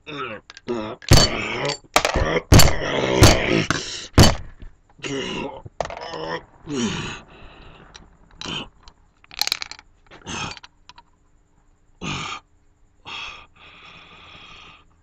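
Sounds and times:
man croaking and grunting: 0:00.0 - 0:04.4, 0:05.0 - 0:07.3
steady hiss: 0:06.2 - 0:11.9.

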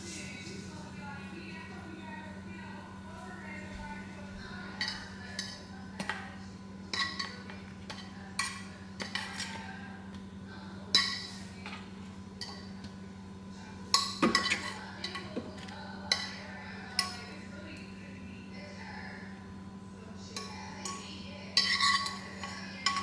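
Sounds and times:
steady low hum: 0:00.0 - 0:23.0
metal fork scraping frying pan: 0:21.6 - 0:23.0.

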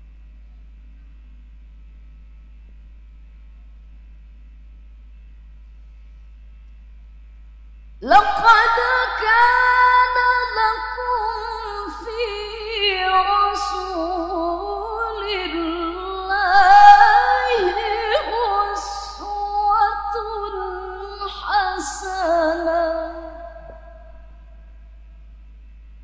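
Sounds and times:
woman reciting melodically: 0:08.0 - 0:24.1.

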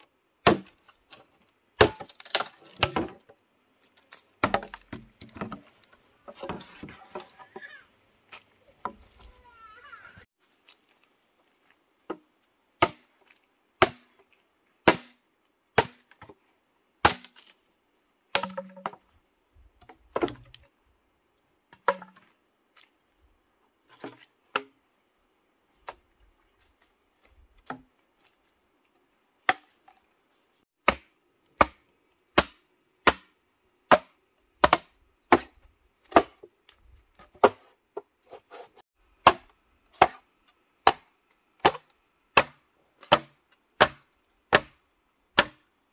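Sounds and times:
blade chopping wood: 0:00.4 - 0:00.8, 0:01.8 - 0:03.2, 0:04.1 - 0:05.6, 0:12.8 - 0:13.1, 0:13.8 - 0:14.1, 0:14.8 - 0:15.2, 0:15.8 - 0:16.3, 0:17.0 - 0:17.6, 0:18.3 - 0:19.0, 0:30.8 - 0:36.4, 0:37.3 - 0:37.7, 0:39.2 - 0:40.2, 0:40.8 - 0:44.8, 0:45.4 - 0:45.6.

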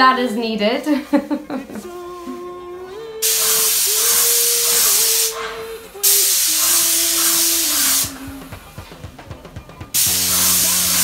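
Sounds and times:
paint sprayer hissing: 0:03.2 - 0:11.0.

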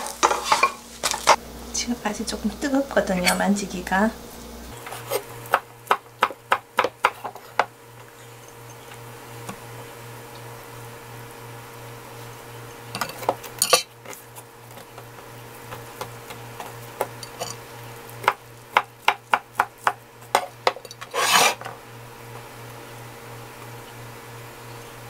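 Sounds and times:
knife scraping board: 0:00.0 - 0:01.4, 0:04.8 - 0:05.3, 0:19.8 - 0:21.7.

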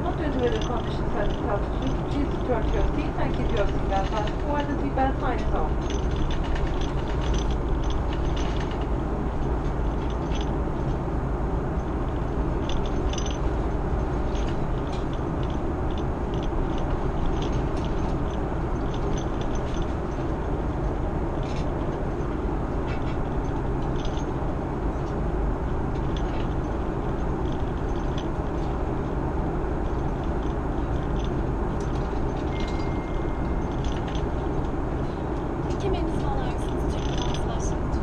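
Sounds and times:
airplane cabin airflow and engine drone: 0:00.0 - 0:38.0.

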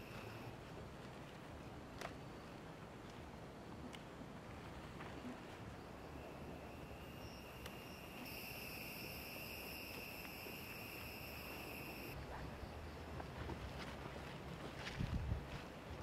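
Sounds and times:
insect buzzing trill: 0:06.7 - 0:12.2.

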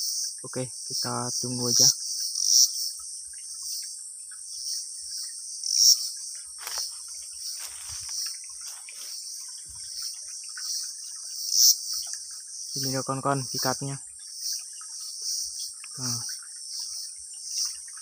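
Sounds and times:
shrill insect chorus: 0:00.0 - 0:18.0
handling rustle: 0:06.6 - 0:09.8.

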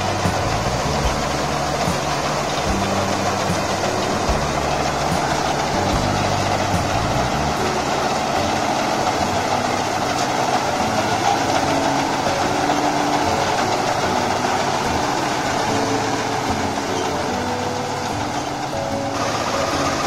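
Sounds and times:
combine harvester running: 0:00.0 - 0:20.0.

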